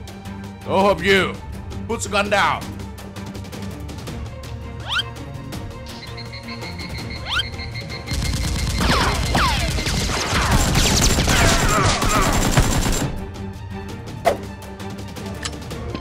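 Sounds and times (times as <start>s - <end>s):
background music: 0.0s - 16.0s
rapid gunfire bursts: 8.1s - 13.2s.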